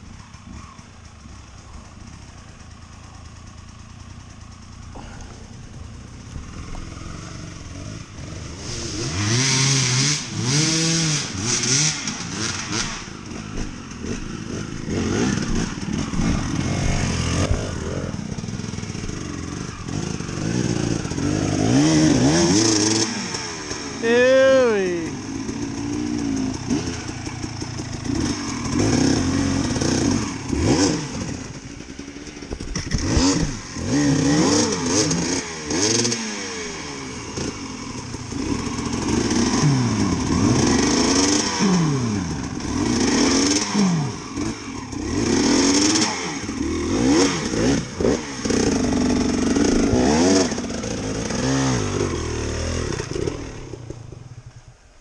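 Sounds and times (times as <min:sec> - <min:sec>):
dirt bike engine revving: 0:00.0 - 0:54.7
knocks and clatters: 0:32.2 - 0:33.6.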